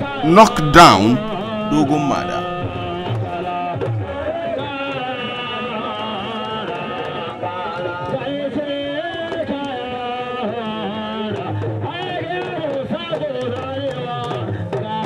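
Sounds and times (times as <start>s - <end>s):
person singing ornamented melody: 0.0s - 3.4s
music: 0.0s - 15.0s.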